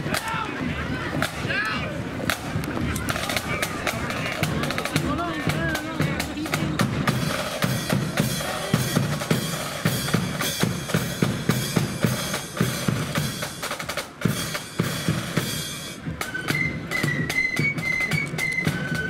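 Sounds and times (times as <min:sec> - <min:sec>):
side drums and bass drum march: 0:00.0 - 0:19.0
flutes playing a tune: 0:15.4 - 0:19.0.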